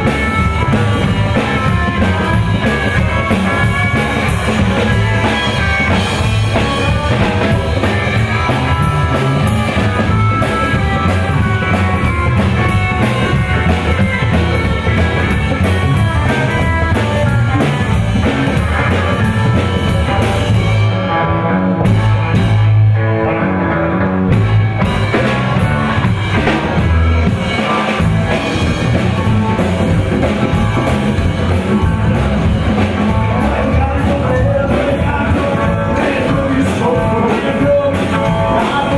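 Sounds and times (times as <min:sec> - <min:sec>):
rockabilly band playing: 0:00.0 - 0:38.9.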